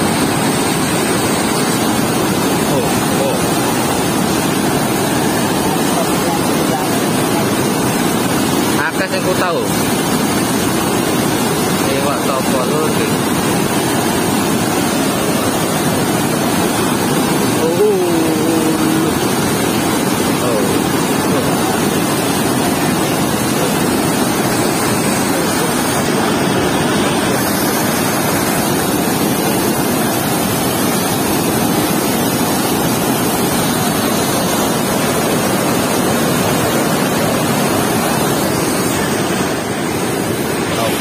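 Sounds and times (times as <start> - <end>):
water rushing through sluice gate: 0.0 - 41.0.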